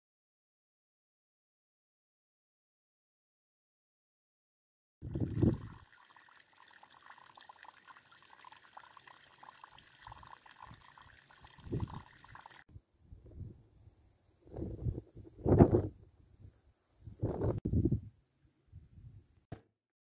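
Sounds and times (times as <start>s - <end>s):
water trickling: 5.0s - 12.7s.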